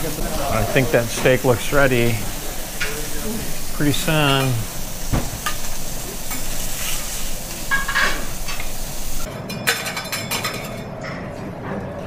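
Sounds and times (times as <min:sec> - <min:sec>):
steak sizzling on griddle: 0:00.0 - 0:09.3.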